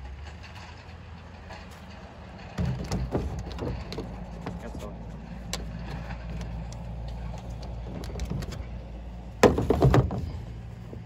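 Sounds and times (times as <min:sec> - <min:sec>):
light clicks and knocks: 0:00.2 - 0:08.8
heavy thumps on tailgate: 0:02.5 - 0:04.6, 0:09.4 - 0:10.4.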